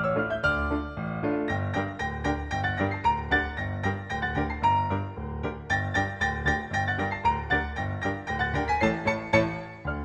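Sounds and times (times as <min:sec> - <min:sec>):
instrumental piano music with bass: 0:00.0 - 0:10.0.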